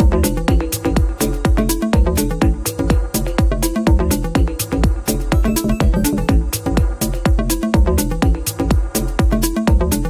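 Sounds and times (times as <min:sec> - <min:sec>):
electronic dance music: 0:05.3 - 0:06.8.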